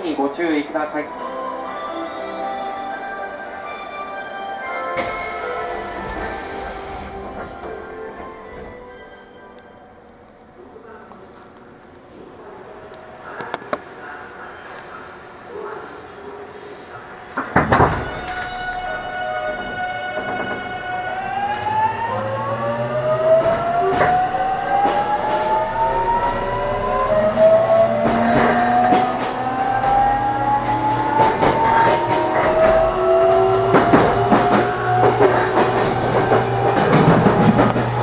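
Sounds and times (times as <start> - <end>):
electric train motor whine: 18.2 - 38.0
wheels clicking over rail joints: 26.8 - 38.0.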